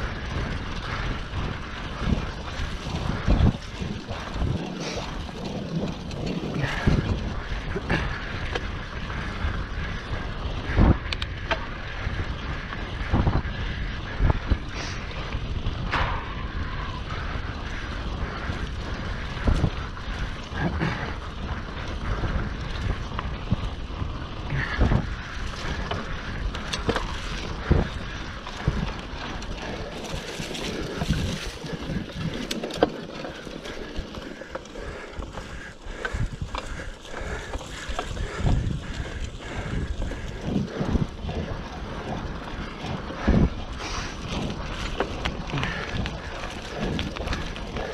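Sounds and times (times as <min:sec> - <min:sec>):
wind rushing over microphone: 0:00.0 - 0:47.9
bike knocks and rattles: 0:10.6 - 0:47.9.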